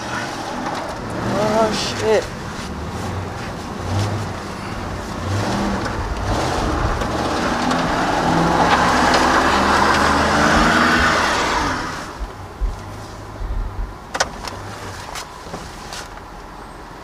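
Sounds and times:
truck engine revving under load: 0:00.0 - 0:12.6.

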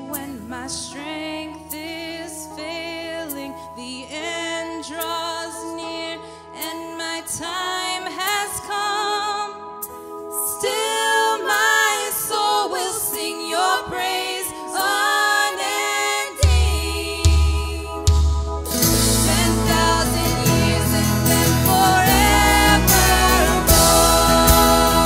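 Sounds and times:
worship band music: 0:00.0 - 0:25.0
heavy bass and drums: 0:16.4 - 0:25.0
person singing: 0:18.8 - 0:25.0.

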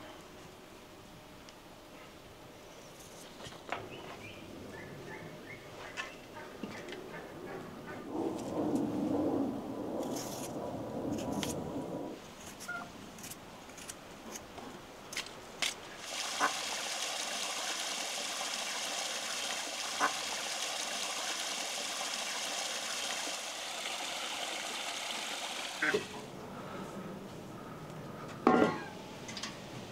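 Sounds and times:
water pouring steadily: 0:16.0 - 0:26.3.

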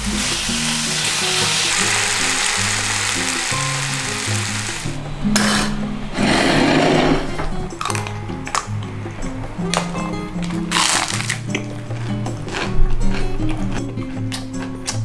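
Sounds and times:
meat sizzling in a frying pan: 0:00.0 - 0:05.0
background music: 0:00.0 - 0:15.0.

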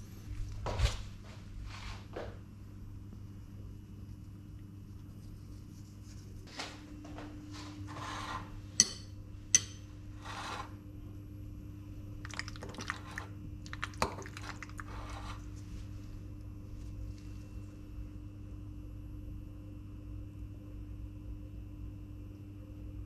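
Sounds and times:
fork scraping through pasta: 0:07.6 - 0:08.6, 0:10.1 - 0:10.8, 0:12.7 - 0:13.3, 0:14.2 - 0:15.7
fork clinking against ceramic bowl: 0:08.8 - 0:09.9.

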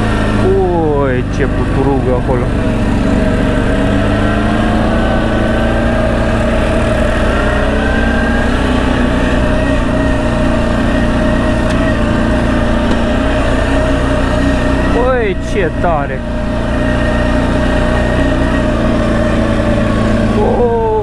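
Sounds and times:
atv engine running: 0:00.0 - 0:21.0.

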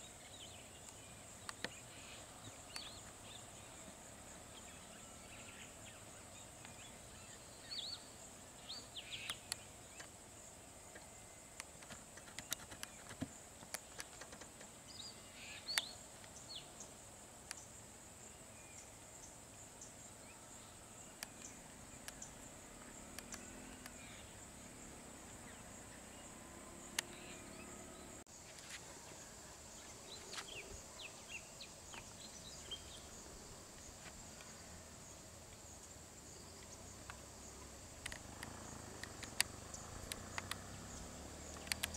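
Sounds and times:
insect drone: 0:00.0 - 0:41.9
sharp clicks: 0:11.6 - 0:14.7, 0:23.1 - 0:24.0, 0:38.0 - 0:40.7, 0:41.5 - 0:41.9.

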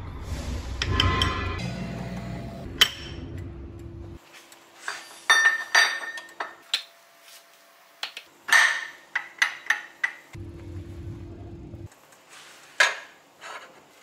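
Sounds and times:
low steady hum: 0:00.0 - 0:04.2, 0:10.4 - 0:11.9.

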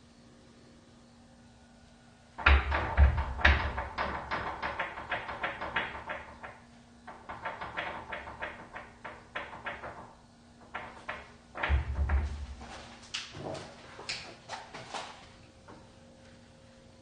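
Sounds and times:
door rattling and banging in frame: 0:02.4 - 0:13.7.

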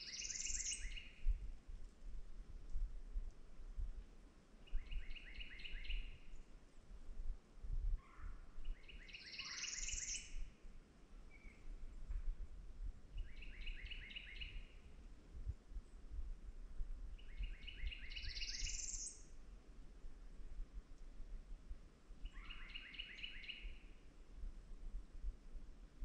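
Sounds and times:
songbird singing with buzzy trill: 0:00.0 - 0:01.5, 0:04.6 - 0:06.5, 0:08.0 - 0:10.6, 0:11.2 - 0:12.2, 0:13.1 - 0:14.9, 0:17.1 - 0:19.4, 0:22.2 - 0:24.1.

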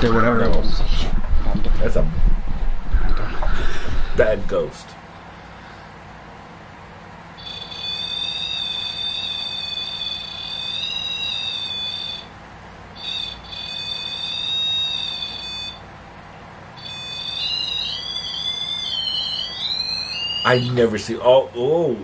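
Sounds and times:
electronic alarm beep: 0:07.4 - 0:12.3, 0:13.0 - 0:15.8, 0:16.8 - 0:20.9.

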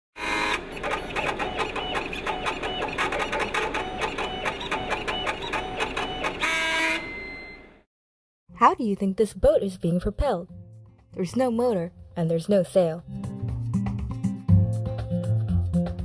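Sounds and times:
rhythmic mechanical clicking: 0:00.2 - 0:06.7
short electronic tones: 0:01.4 - 0:07.8.

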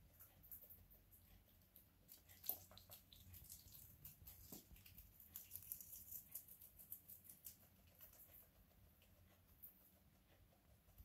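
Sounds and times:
rodent chewing leaf: 0:00.0 - 0:11.0.

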